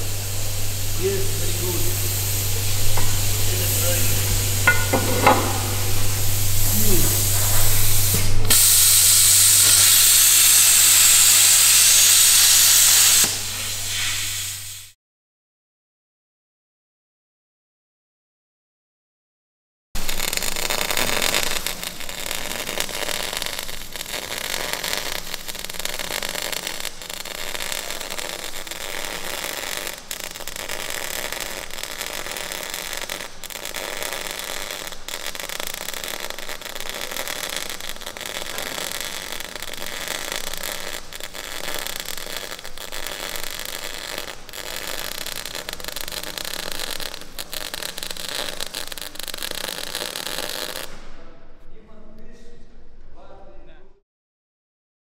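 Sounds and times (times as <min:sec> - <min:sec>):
electric arc welding crackling: 0:00.0 - 0:15.0, 0:20.0 - 0:51.0
sharp pops: 0:02.2 - 0:06.2, 0:20.0 - 0:51.1.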